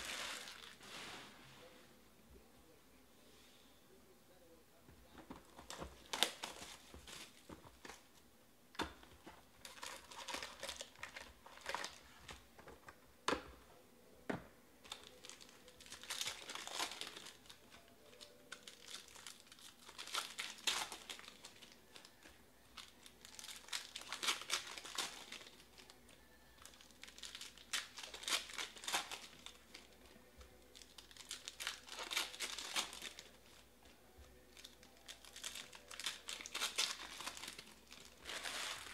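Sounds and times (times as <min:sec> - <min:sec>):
foil wrappers tearing and crinkling: 0:00.0 - 0:00.8, 0:05.7 - 0:07.5, 0:09.6 - 0:12.3, 0:14.9 - 0:25.9, 0:26.6 - 0:29.9, 0:30.7 - 0:33.7, 0:34.5 - 0:38.9.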